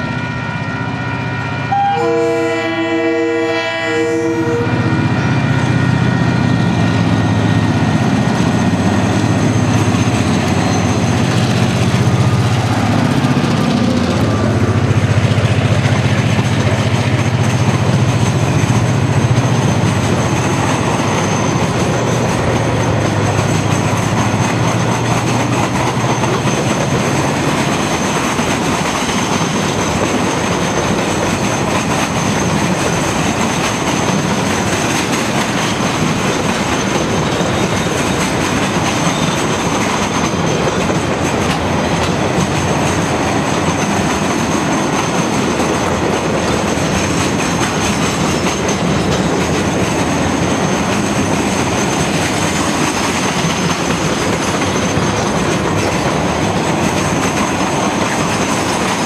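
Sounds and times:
train wheels rumbling on rails: 0.0 - 59.0
clickety-clack over rail joints: 6.6 - 59.0
high wheel squeal: 8.2 - 11.6, 18.3 - 23.9, 36.6 - 40.6.

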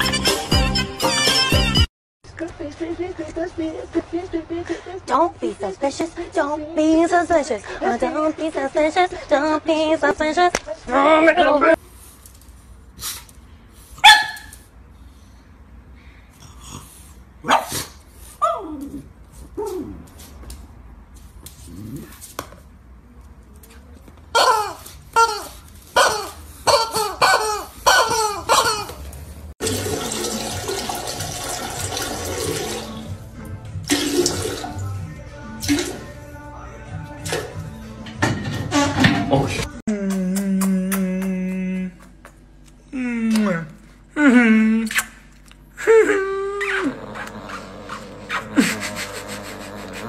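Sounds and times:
dog barking sharply: 14.0 - 14.5, 17.4 - 17.9
toilet flushing: 29.6 - 35.0, 35.6 - 36.1.

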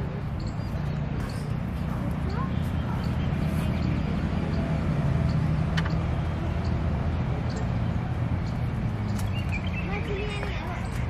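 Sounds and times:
high chirp: 0.2 - 6.8.

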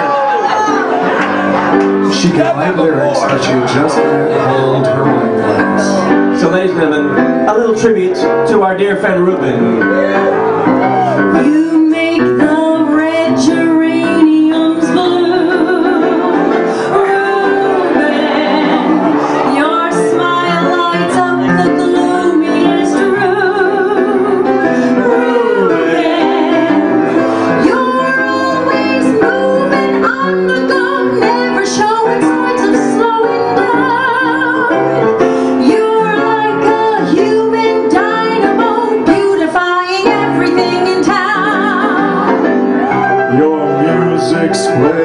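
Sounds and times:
piano accompaniment: 0.0 - 45.0
woman singing into microphone: 11.3 - 42.5
vocal group singing show tune: 11.3 - 45.0.

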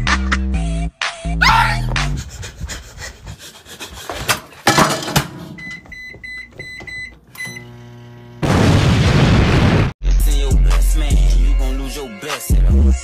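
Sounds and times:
clattering: 4.3 - 5.5
microwave keypad beeping: 5.6 - 7.8
microwave oven humming: 6.8 - 8.5
loud explosion blast: 8.4 - 9.9.

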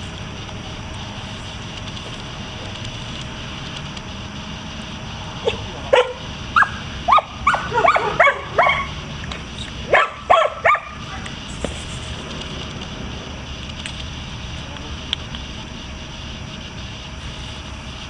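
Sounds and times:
dog barking: 5.4 - 9.0, 9.9 - 11.3.

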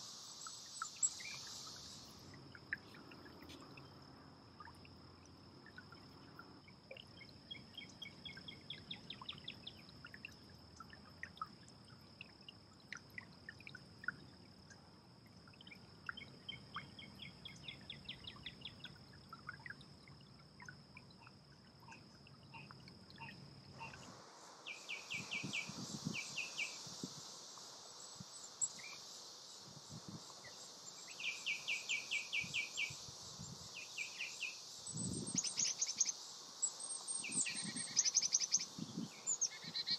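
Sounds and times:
high insect drone: 0.0 - 39.9
birds calling in rapid trills: 31.0 - 39.9.

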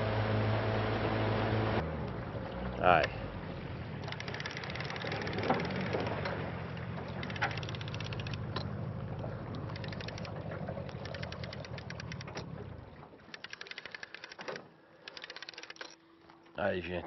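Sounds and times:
boat motor running: 0.0 - 16.4
fishing reel clicker ticking: 4.0 - 6.1, 7.2 - 8.4, 9.6 - 12.3, 13.3 - 16.0.

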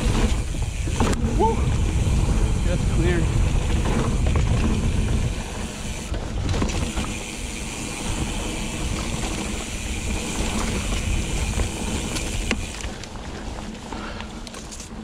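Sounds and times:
wind on microphone: 0.0 - 7.0
bike knocks and rattles: 0.0 - 7.5, 8.7 - 15.0
bike tyres rumbling over dirt: 0.0 - 15.0.

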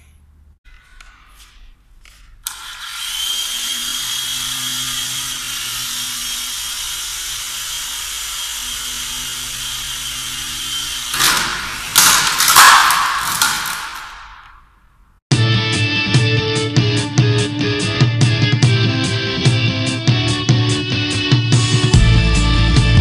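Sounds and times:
toy helicopter motor whine: 2.5 - 11.2.

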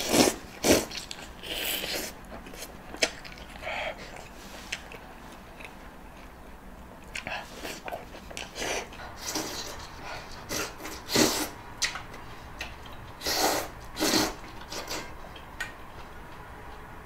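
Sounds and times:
person slurping food: 0.0 - 2.7, 10.5 - 11.6, 13.2 - 15.1
person chewing food: 0.0 - 16.8.

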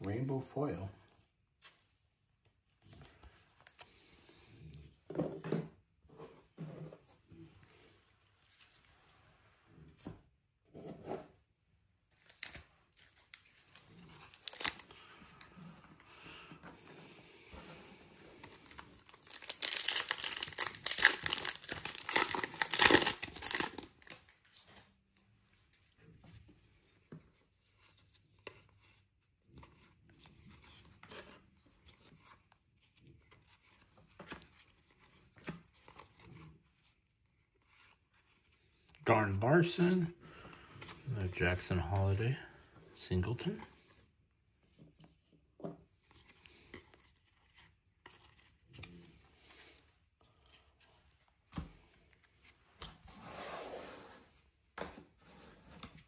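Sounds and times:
cards rustling and clicking: 12.1 - 15.6, 18.3 - 24.8, 45.8 - 53.1
wrapper tearing and crinkling: 13.7 - 14.9, 18.9 - 24.3.

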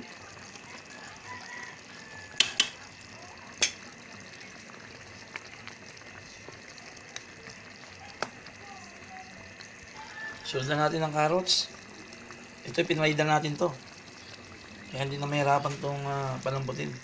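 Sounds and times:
stew bubbling in a pot: 0.0 - 17.0
utensil clinking against pot: 2.4 - 2.8.

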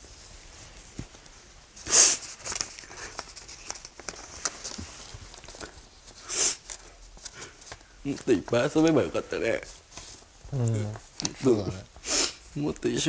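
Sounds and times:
man sniffing: 12.0 - 12.4.

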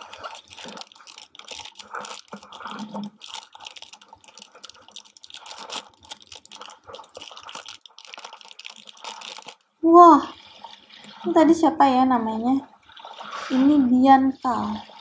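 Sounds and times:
foil wrapper crinkling: 0.0 - 9.6.

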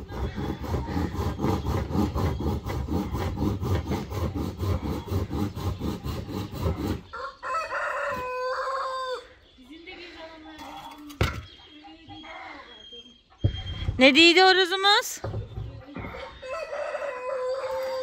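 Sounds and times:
hand saw cutting wood: 0.0 - 7.1
rooster crowing: 7.1 - 9.3, 16.4 - 18.0.

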